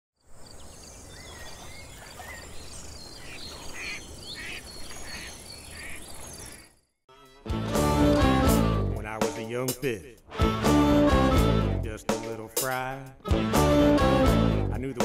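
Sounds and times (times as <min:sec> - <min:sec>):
bird calls: 0:00.2 - 0:07.0.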